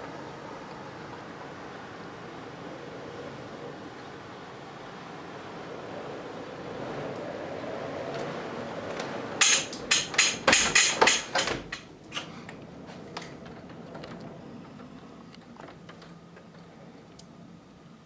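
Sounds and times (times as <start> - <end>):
wind rushing over microphone: 0.0 - 10.6
sharp knocks: 9.4 - 11.9.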